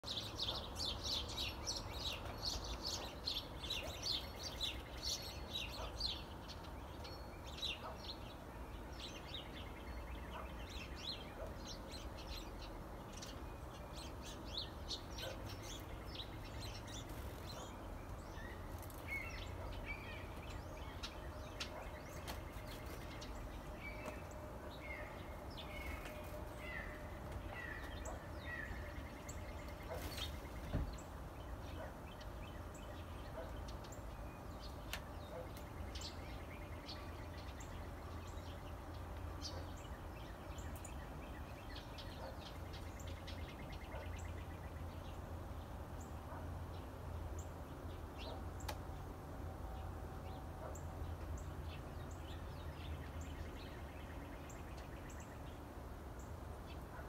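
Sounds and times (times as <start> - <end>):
songbirds chirping: 0.0 - 57.0.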